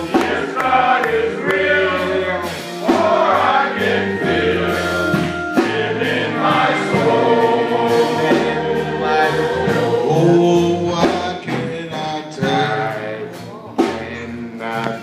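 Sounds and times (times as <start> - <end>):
male vocal group singing in harmony: 0.0 - 15.0.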